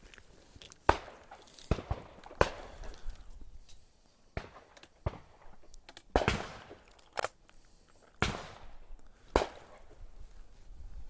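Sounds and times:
shotgun shots echoing: 0:04.4 - 0:06.9, 0:08.2 - 0:09.9.

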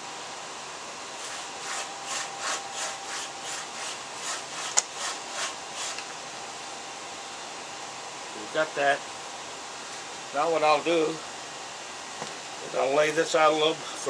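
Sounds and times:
hide rasping over wooden stake: 0:01.2 - 0:06.1.

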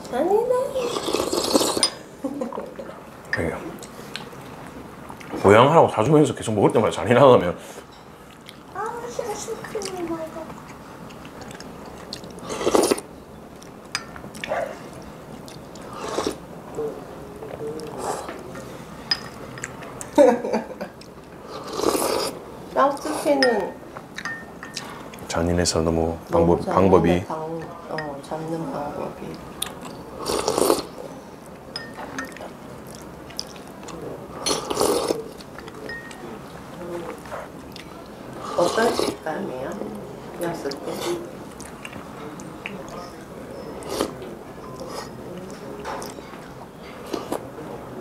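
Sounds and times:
person slurping soup from spoon: 0:00.8 - 0:02.0, 0:12.4 - 0:13.1, 0:15.8 - 0:16.4, 0:21.5 - 0:22.4, 0:30.2 - 0:31.0, 0:34.4 - 0:35.3, 0:38.4 - 0:39.2, 0:43.8 - 0:44.2
wet chewing and sipping: 0:00.8 - 0:02.0, 0:08.2 - 0:08.7, 0:09.7 - 0:16.4, 0:21.0 - 0:22.4, 0:29.3 - 0:43.1, 0:43.7 - 0:47.5.

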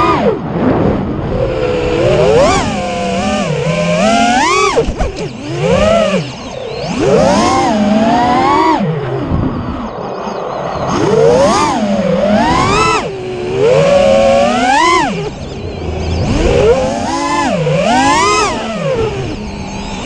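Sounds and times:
quadcopter motors whining: 0:00.0 - 0:20.0.

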